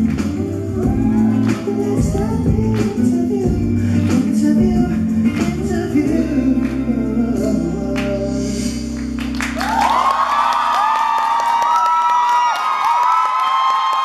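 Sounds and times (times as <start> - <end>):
audience screaming and cheering: 0.0 - 2.8, 9.2 - 14.0
man singing into microphone: 0.0 - 9.0
band backing track: 0.0 - 9.7.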